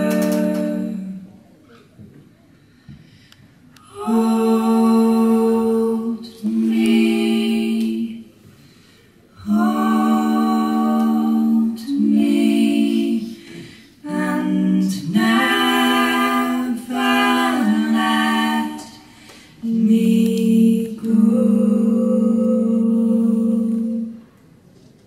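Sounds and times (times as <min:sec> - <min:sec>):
women singing in harmony: 0:00.0 - 0:01.3, 0:03.8 - 0:08.6, 0:09.4 - 0:24.2.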